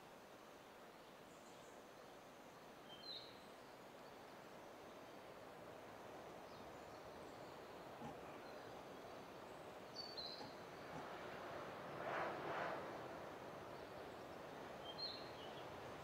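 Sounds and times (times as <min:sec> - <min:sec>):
faint outdoor ambience: 0:00.0 - 0:16.0
bird chirp: 0:06.5 - 0:11.0, 0:14.8 - 0:15.7.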